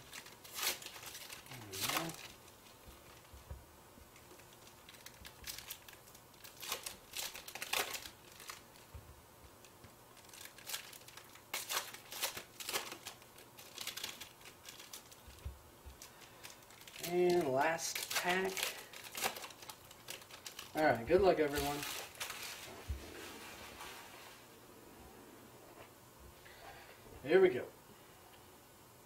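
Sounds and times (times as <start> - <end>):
foil wrappers crinkling: 0.0 - 3.5, 4.1 - 9.0, 9.6 - 24.4.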